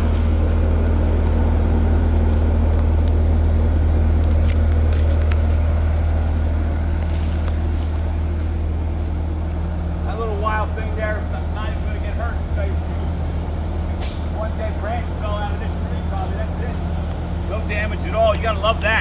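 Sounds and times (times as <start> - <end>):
footsteps through grass and brush: 0.0 - 12.6
engine idling: 0.0 - 19.0.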